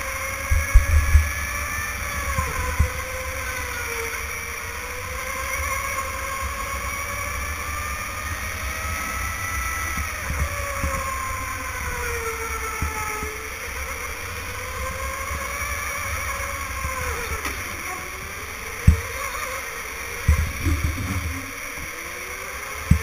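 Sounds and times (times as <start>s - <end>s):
electric go-kart motor whining: 0.0s - 23.0s
low rumble of kart vibration: 0.0s - 23.0s
small knocks: 16.8s - 19.6s.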